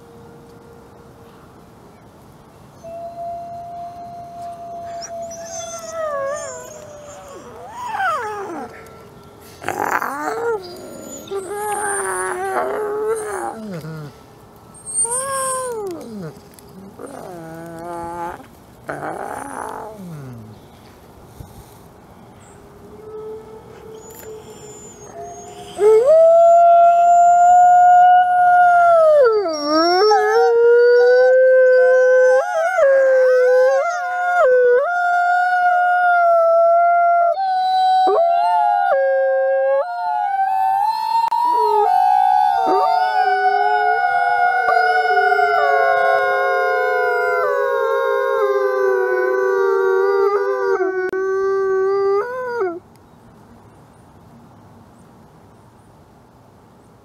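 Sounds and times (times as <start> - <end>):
wolves howling in chorus: 4.4 - 14.2, 37.6 - 51.2.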